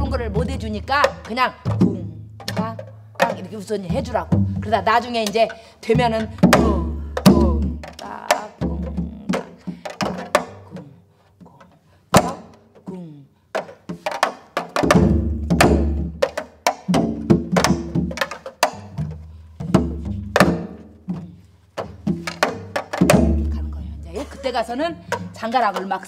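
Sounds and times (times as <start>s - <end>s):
deep drum strikes: 0.0s - 5.3s, 5.9s - 10.8s, 14.8s - 25.6s
woman singing: 0.0s - 9.7s, 23.5s - 26.0s
stick clacks on drumhead: 0.9s - 4.2s, 5.2s - 12.9s, 13.5s - 23.6s, 25.0s - 26.0s.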